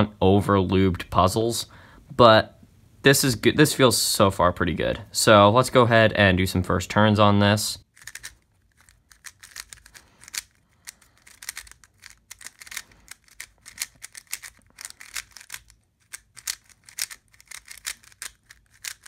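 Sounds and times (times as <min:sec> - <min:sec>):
speed cube plastic clicks: 0:07.8 - 0:19.0.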